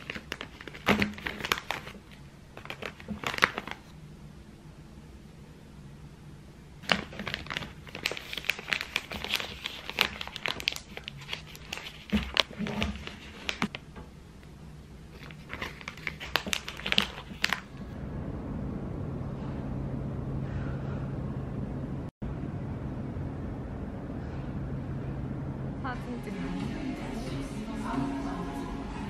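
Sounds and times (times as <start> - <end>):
plastic bag crinkling: 0.0 - 3.9, 6.8 - 13.8, 15.1 - 17.8
steady low hum: 17.5 - 29.0.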